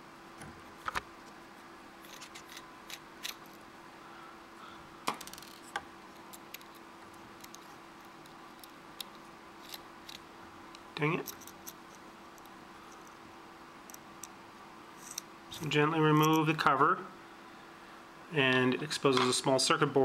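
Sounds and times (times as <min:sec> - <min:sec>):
faint steady hum: 0:00.0 - 0:20.0
screwdriver clicks and scrapes: 0:02.0 - 0:03.6, 0:07.4 - 0:10.2.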